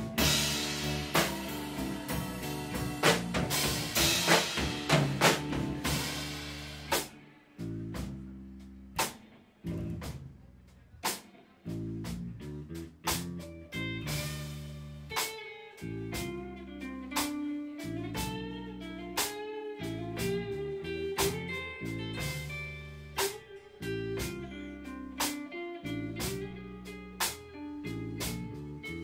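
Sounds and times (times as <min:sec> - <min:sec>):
drum hits: 0:00.0 - 0:07.1
guitar melody: 0:00.0 - 0:10.3, 0:11.4 - 0:29.0
bass: 0:00.0 - 0:29.0.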